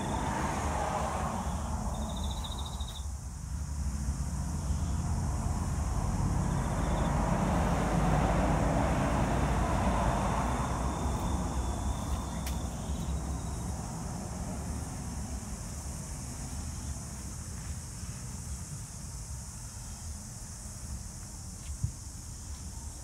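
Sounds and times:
vehicle passing: 0:00.0 - 0:17.2.

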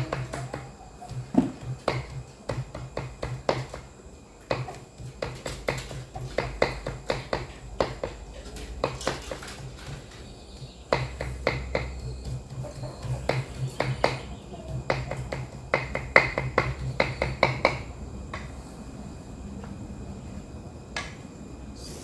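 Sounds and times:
knife chopping meat on board: 0:00.0 - 0:03.9, 0:04.5 - 0:17.8.

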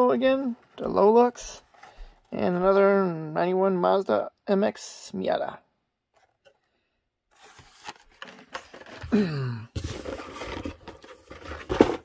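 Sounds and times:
cardboard and plastic rustling: 0:00.3 - 0:02.8, 0:06.1 - 0:06.7, 0:07.3 - 0:12.0.

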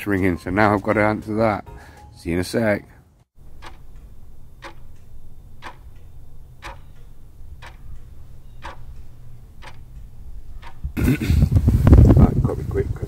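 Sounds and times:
clock ticking: 0:03.4 - 0:11.0.

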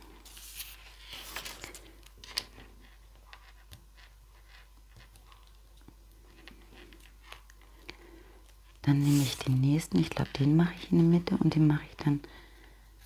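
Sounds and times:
paper rustling: 0:00.2 - 0:02.0, 0:09.0 - 0:09.6.

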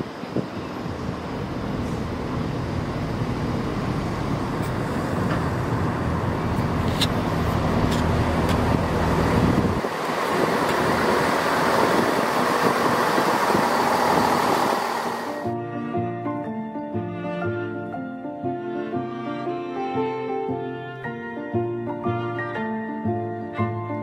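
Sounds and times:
train wheels rumbling on rail: 0:00.0 - 0:15.5
diesel engine hum: 0:00.0 - 0:16.1.

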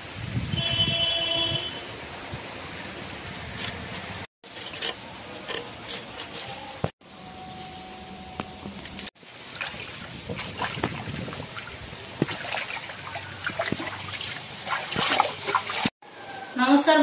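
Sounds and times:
hands splashing in pond water: 0:09.2 - 0:15.9.

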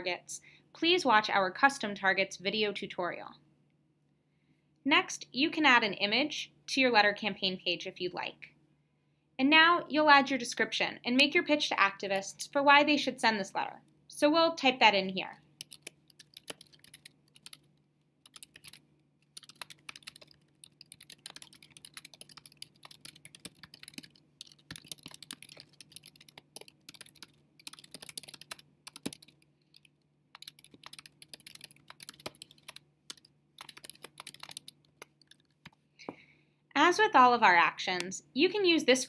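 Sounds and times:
computer keyboard typing: 0:15.6 - 0:35.8.

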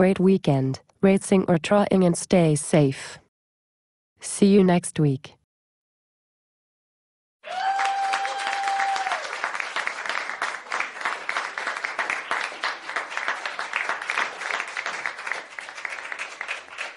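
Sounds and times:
audience applause: 0:07.4 - 0:16.9.

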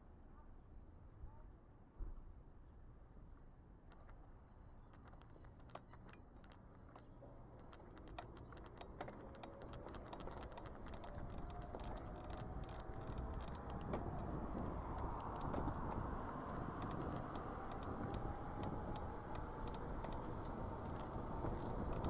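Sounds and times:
fast clicking rattle: 0:04.9 - 0:22.0
road noise: 0:05.0 - 0:22.0
wind noise: 0:07.8 - 0:22.0.

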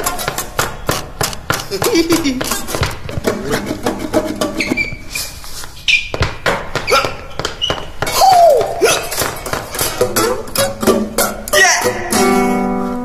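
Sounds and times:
shoes tapping on wooden boards: 0:00.0 - 0:11.6
high squeaks: 0:03.5 - 0:12.5.

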